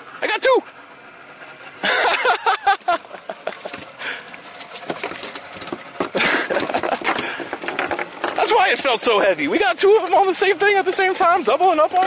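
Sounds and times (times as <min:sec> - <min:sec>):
fish flapping on boat deck: 0:02.6 - 0:12.0.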